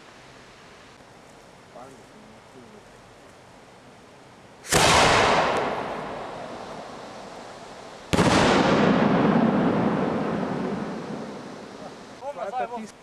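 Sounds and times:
firework shell bangs with echo: 0:04.6 - 0:07.0, 0:08.1 - 0:12.2.

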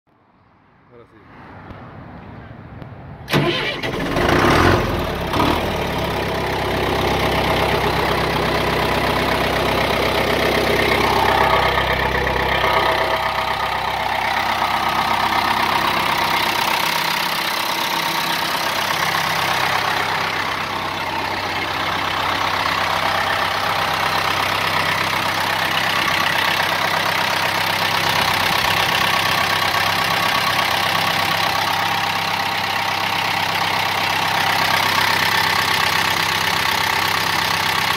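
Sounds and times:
diesel engine idling: 0:03.3 - 0:37.9.

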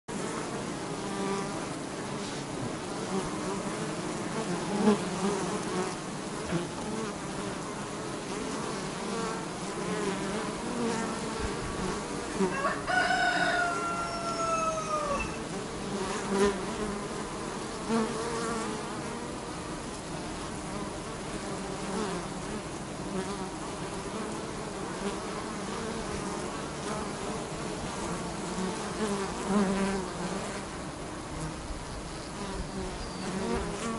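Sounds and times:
honeybees buzzing: 0:00.1 - 0:33.9
rooster crowing: 0:12.4 - 0:15.4.

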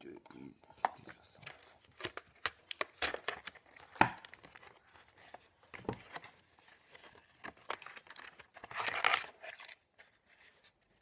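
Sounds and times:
packaging crinkling and scraping: 0:00.8 - 0:11.0
packaging crack: 0:01.4 - 0:05.0, 0:07.2 - 0:09.9.

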